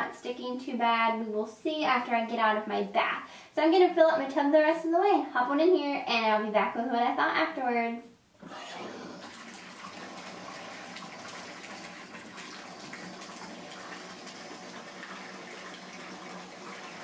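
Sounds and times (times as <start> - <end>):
bath tap running into bathtub: 8.4 - 17.0.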